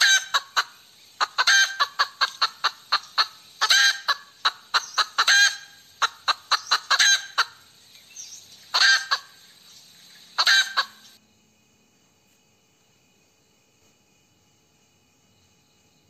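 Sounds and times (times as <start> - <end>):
hen cackling: 0.0 - 7.8, 8.6 - 9.6, 10.3 - 11.2.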